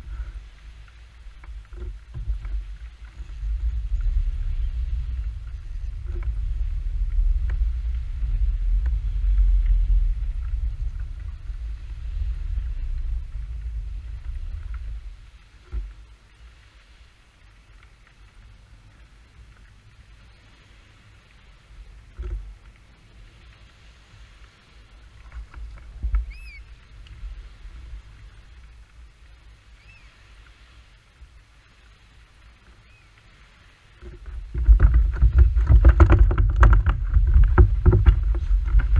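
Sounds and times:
low rumble: 0.0 - 16.1, 34.0 - 38.9
faint ticks: 0.0 - 38.9
wind buffeting microphone: 0.0 - 38.9
thumps on plastic kayak: 34.1 - 38.9.

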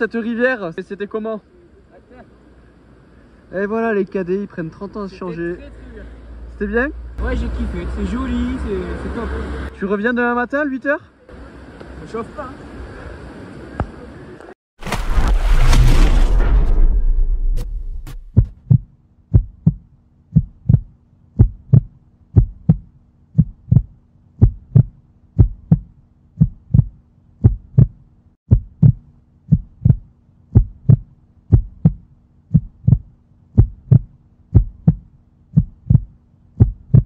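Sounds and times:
heartbeat-like double thumps: 15.4 - 37.0.

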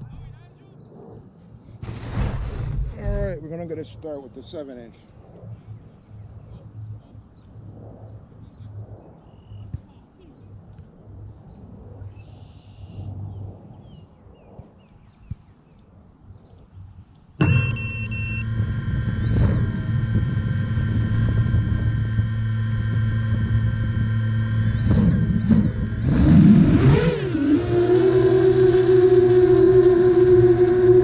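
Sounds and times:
drone motors humming: 17.4 - 31.0.

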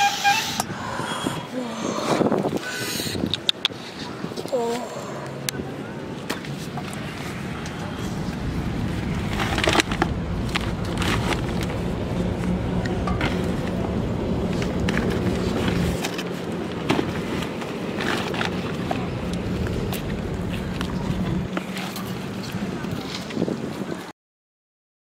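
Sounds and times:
low rumble: 6.8 - 23.8.

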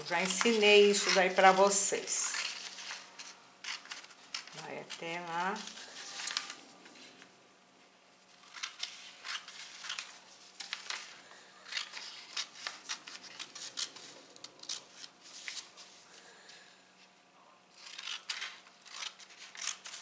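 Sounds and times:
scissors snipping paper: 0.0 - 6.6, 8.3 - 15.1, 17.7 - 20.0.

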